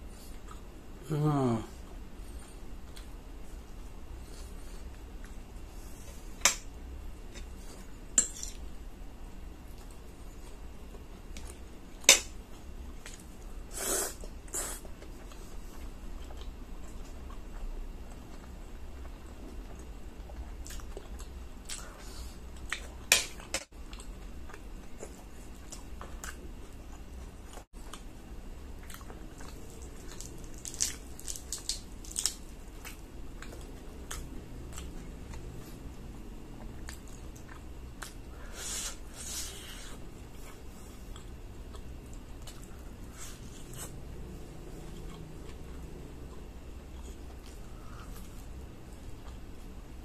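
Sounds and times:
chewing food: 14.2 - 38.3, 40.3 - 49.8
fried chicken crackling torn: 30.1 - 32.4.

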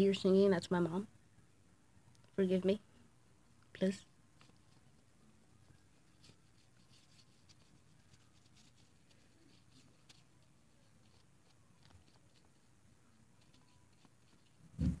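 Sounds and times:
paintbrush scratching: 4.4 - 15.0.

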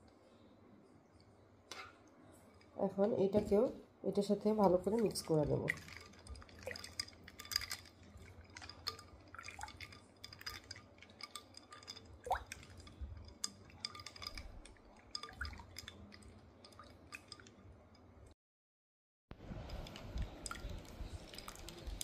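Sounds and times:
liquid sloshing: 4.4 - 18.0, 19.5 - 22.0
ice and spoon clinking on glass: 4.8 - 17.6.

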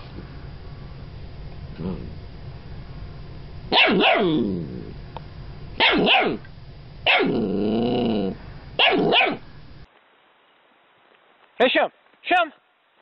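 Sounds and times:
puppy barking: 3.7 - 4.4, 5.8 - 6.4, 7.1 - 7.4, 8.8 - 9.4.

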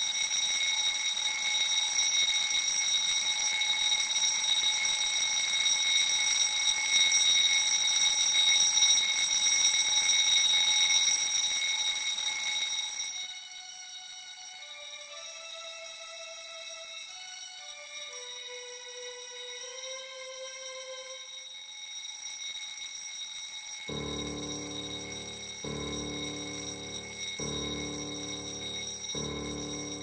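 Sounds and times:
electric alarm bell ringing: 21.2 - 30.0.

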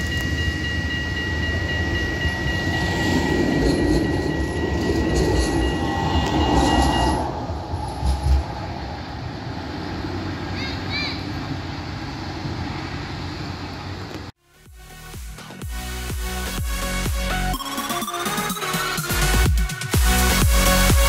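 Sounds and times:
high wheel squeal: 0.0 - 8.9
tram rolling past: 0.0 - 14.3.

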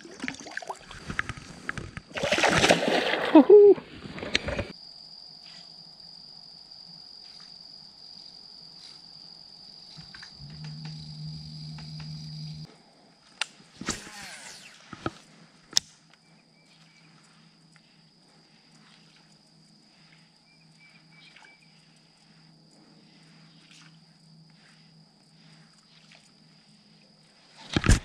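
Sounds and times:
insects buzzing: 0.0 - 12.8, 13.5 - 27.7
low hum: 10.0 - 12.8.

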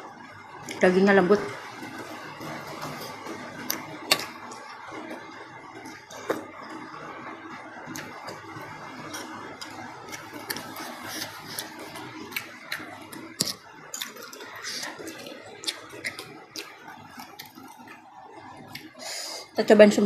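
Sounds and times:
wet chewing: 7.9 - 19.0.

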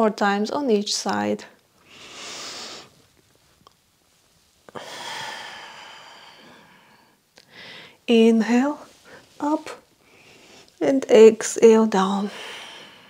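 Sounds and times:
woman breathing: 1.8 - 3.1, 4.7 - 8.1, 8.8 - 10.8, 12.2 - 13.0.

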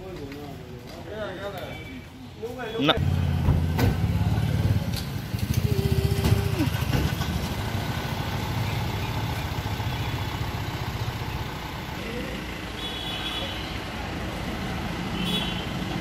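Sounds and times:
vehicle engine idling: 3.0 - 15.3.

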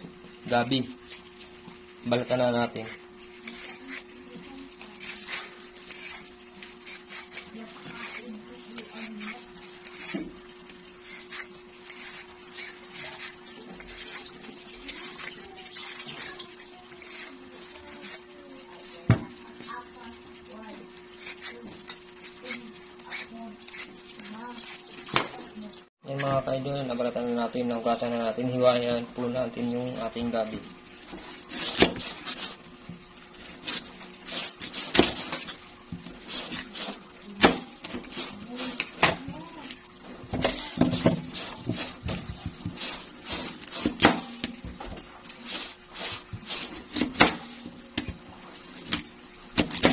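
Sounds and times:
peeler scraping root skin: 2.2 - 4.2, 4.8 - 10.3, 10.9 - 19.0, 21.1 - 25.2, 31.1 - 32.6, 33.3 - 39.8, 40.4 - 44.1, 45.4 - 47.3.

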